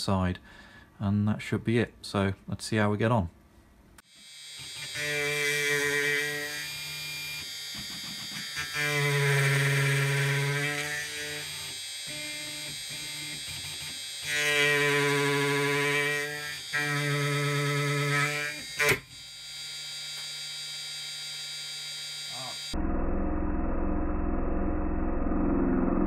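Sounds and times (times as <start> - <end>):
gritty metal cutting: 4.1 - 22.8.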